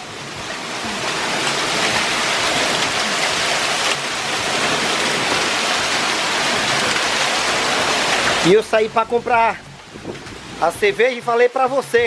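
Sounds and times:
heavy rain and hail: 0.0 - 12.0.

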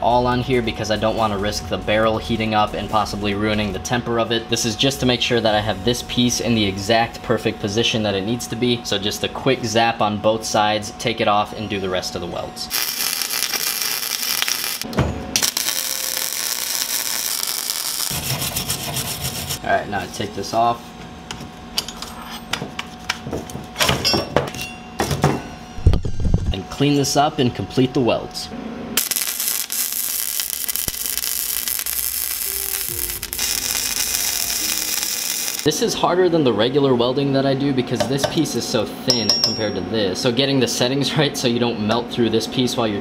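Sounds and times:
welding arc crackling: 12.7 - 19.6, 29.0 - 35.7.

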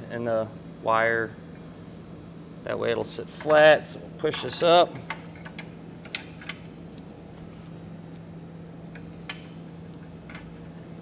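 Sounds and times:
steady low hum: 0.0 - 11.0
light metallic clicks and clinks: 6.2 - 9.6.

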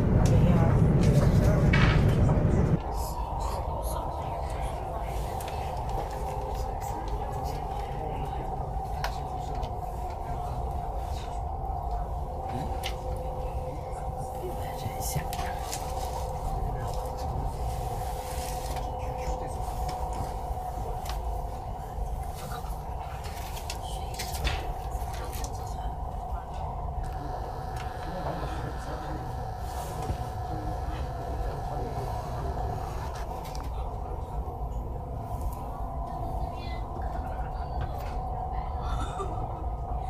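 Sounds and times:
constant hum: 0.0 - 40.0
train cabin low rumble: 0.0 - 40.0.

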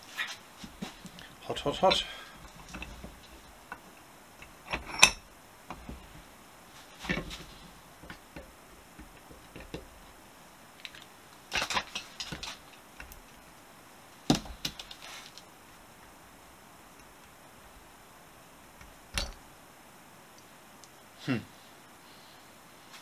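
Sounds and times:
screwdriver scraping metal: 4.4 - 5.8.

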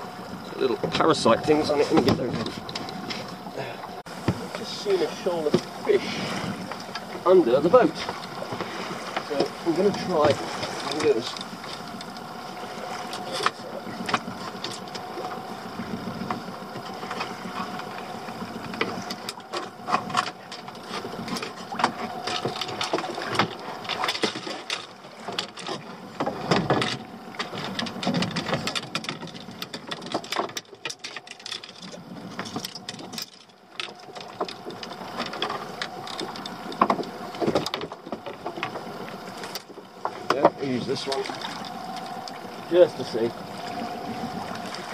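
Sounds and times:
water: 0.0 - 44.9
wind noise: 12.6 - 19.3, 40.2 - 44.9.

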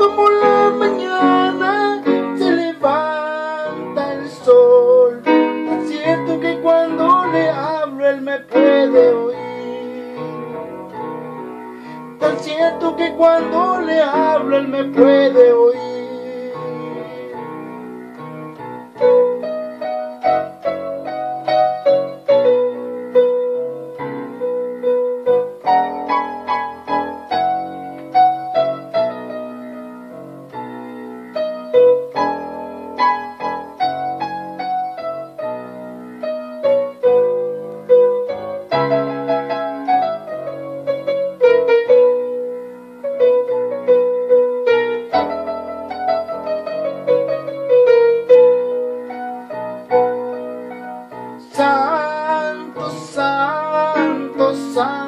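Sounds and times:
slow piano hymn melody: 0.0 - 55.0.

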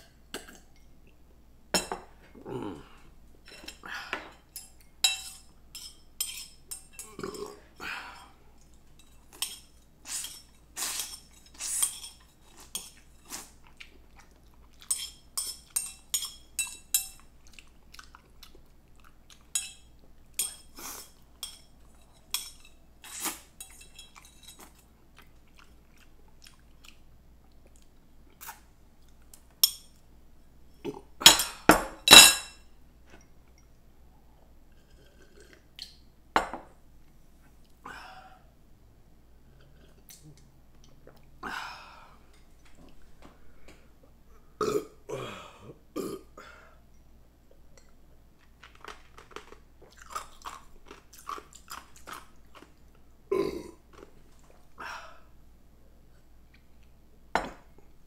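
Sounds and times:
cutlery clinking against a bowl: 3.5 - 7.4, 8.9 - 13.5, 14.7 - 17.3, 19.4 - 24.8, 31.2 - 32.6
chewing: 8.6 - 15.8, 17.2 - 19.6, 20.4 - 29.5, 47.8 - 53.0.

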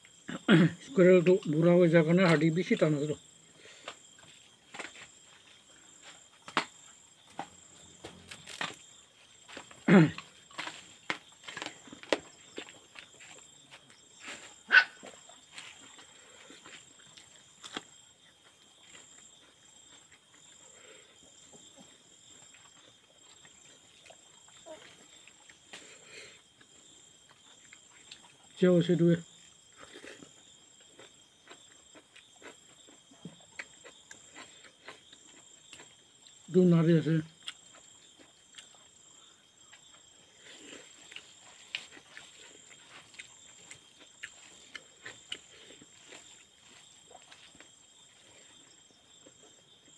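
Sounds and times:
person chewing: 9.4 - 21.3, 29.5 - 36.4, 37.4 - 38.9, 39.6 - 49.6.

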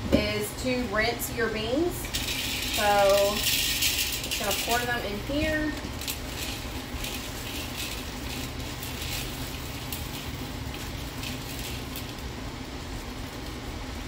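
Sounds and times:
dry beans poured into colander: 1.5 - 14.0.

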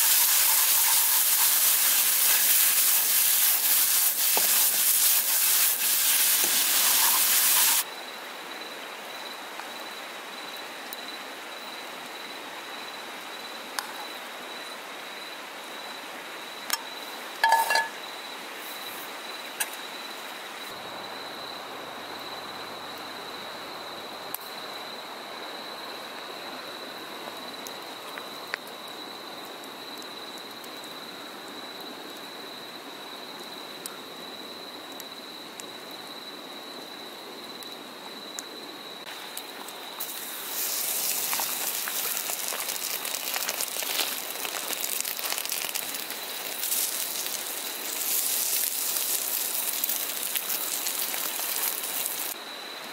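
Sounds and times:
mushrooms sizzling in a frying pan: 0.0 - 7.9, 39.2 - 52.4
insect trill: 0.0 - 52.9
low steady background hiss: 0.0 - 52.9.

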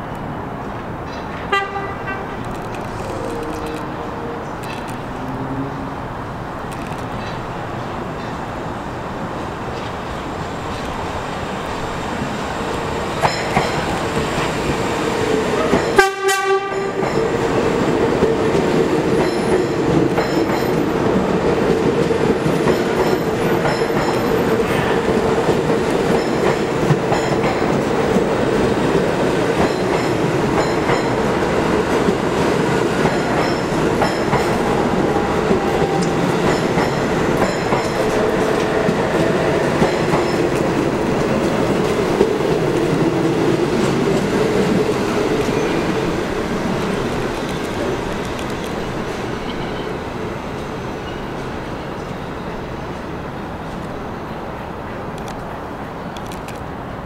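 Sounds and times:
train wheels rumbling on rails: 0.0 - 57.0
train horn blast: 1.5 - 2.4, 15.6 - 17.0.

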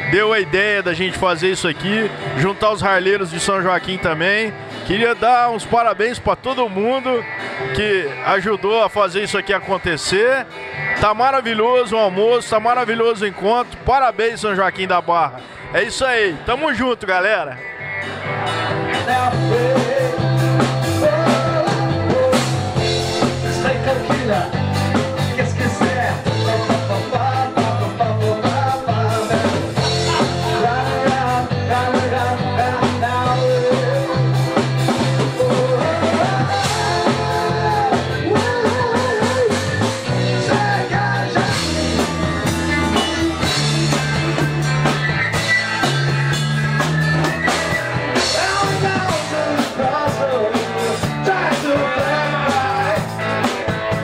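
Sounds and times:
electric guitar: 0.0 - 14.6, 17.4 - 54.0
bass line in held notes: 0.0 - 54.0
drum kit: 18.0 - 54.0
person singing: 18.9 - 44.7, 48.2 - 54.0.

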